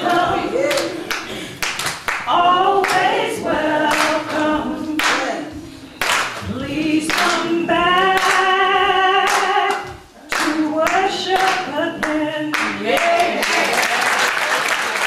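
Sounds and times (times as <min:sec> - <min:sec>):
choir singing: 0:00.0 - 0:01.1, 0:02.3 - 0:05.6
hands clapping: 0:00.7 - 0:03.3, 0:03.9 - 0:05.3, 0:06.0 - 0:06.5, 0:07.1 - 0:07.5, 0:09.3 - 0:15.0
woman singing into a microphone: 0:06.5 - 0:13.5.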